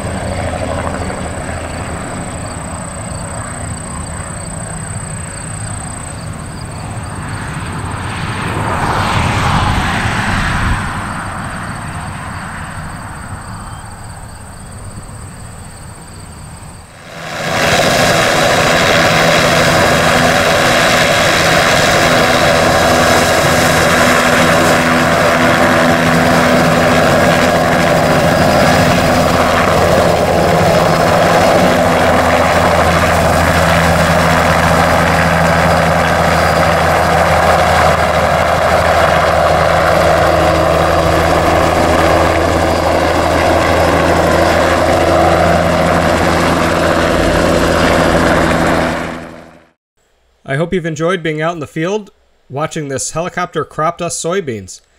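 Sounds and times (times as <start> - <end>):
helicopter rotor and engine noise: 0.0 - 49.8.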